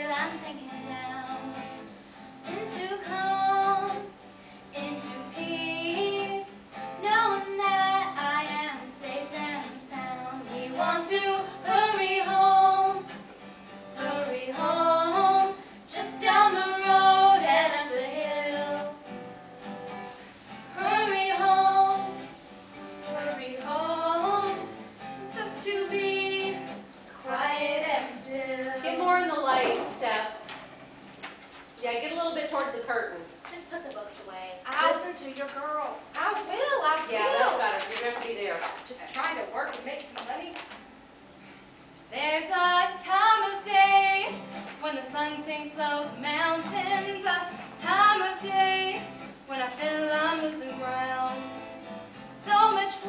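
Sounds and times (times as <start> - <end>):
woman singing slow song: 0.0 - 13.2, 14.0 - 19.1, 20.7 - 22.3, 23.0 - 30.4, 42.1 - 51.5, 52.4 - 53.0.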